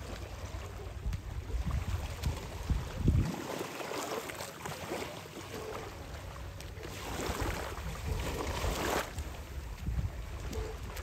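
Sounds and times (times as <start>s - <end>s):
water splashing from swimming strokes: 0.0s - 11.0s
wind buffeting microphone: 0.6s - 3.4s, 6.8s - 11.0s.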